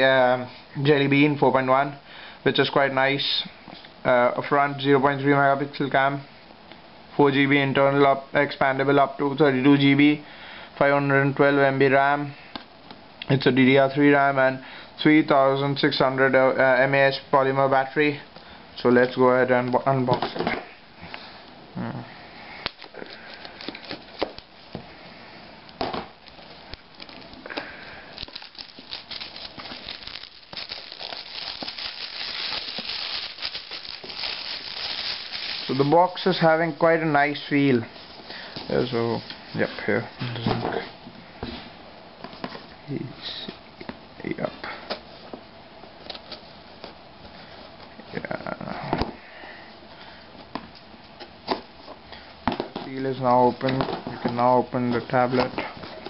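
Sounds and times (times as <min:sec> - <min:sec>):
shrink-wrap crinkling: 0:22.6 - 0:24.7, 0:26.2 - 0:39.6.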